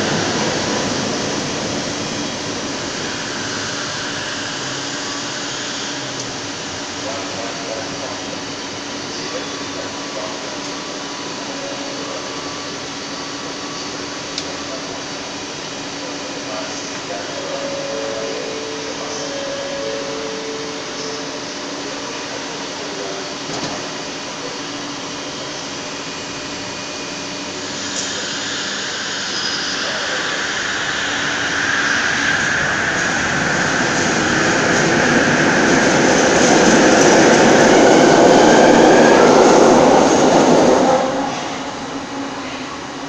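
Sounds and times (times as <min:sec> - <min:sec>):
train electrical hum: 0:00.0 - 0:43.0
train running noise: 0:00.0 - 0:43.0
two-note tone: 0:17.4 - 0:21.6.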